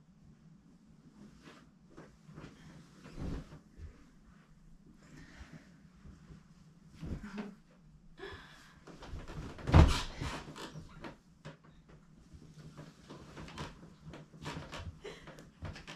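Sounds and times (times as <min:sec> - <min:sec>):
bedding rustling: 0:01.0 - 0:07.9, 0:08.9 - 0:11.2
person dropping onto mattress: 0:09.0 - 0:10.5.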